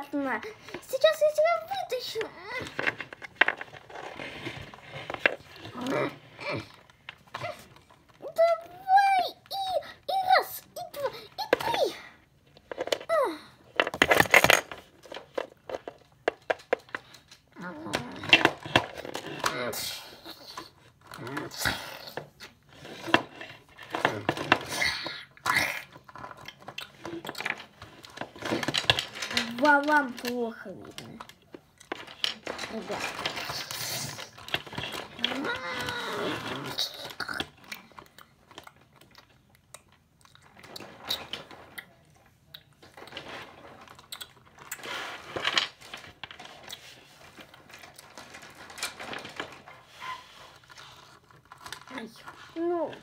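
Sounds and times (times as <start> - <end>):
rustling handling noise: 0.1 - 19.5, 26.0 - 53.0
plastic toy clicks and knocks: 26.1 - 36.0.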